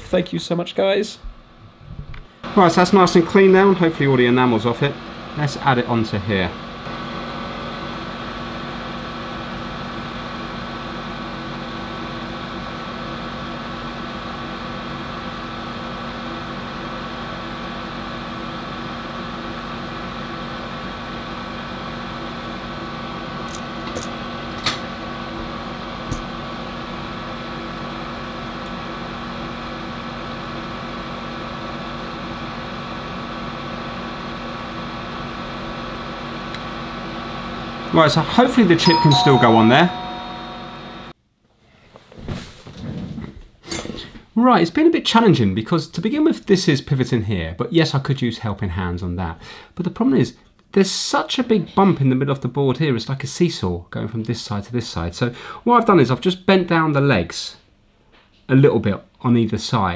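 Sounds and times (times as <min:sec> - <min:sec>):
fan-driven machine humming: 0:00.0 - 0:41.2.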